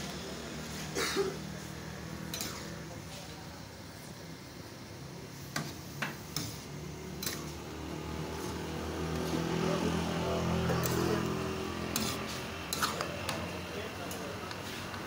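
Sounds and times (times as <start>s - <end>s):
spatula scraping a wok: 2.2s - 2.9s, 5.5s - 9.6s, 10.4s - 13.6s.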